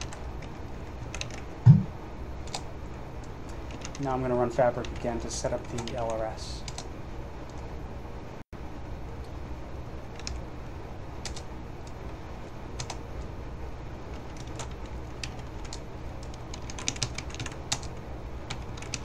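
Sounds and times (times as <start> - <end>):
steady low hum: 0.0 - 19.0
keyboard typing: 1.1 - 2.6, 3.7 - 4.0, 12.8 - 13.0, 14.2 - 17.9, 18.5 - 19.0.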